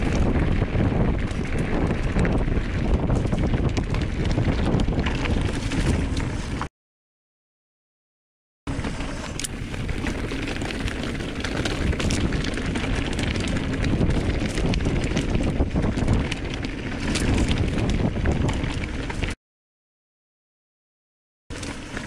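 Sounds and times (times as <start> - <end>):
bike rattling and knocking: 0.0 - 6.7, 8.7 - 19.4
tyres rumbling on dirt: 0.0 - 6.7, 8.7 - 19.4
wind buffeting microphone: 0.0 - 6.7, 8.7 - 19.4.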